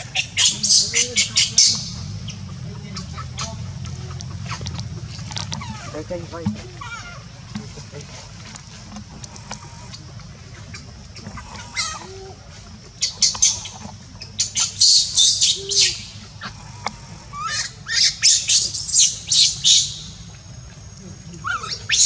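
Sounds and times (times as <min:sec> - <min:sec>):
monkeys screeching: 0:00.0 - 0:07.3, 0:10.7 - 0:12.4, 0:13.0 - 0:13.8, 0:14.4 - 0:20.1, 0:21.4 - 0:22.0.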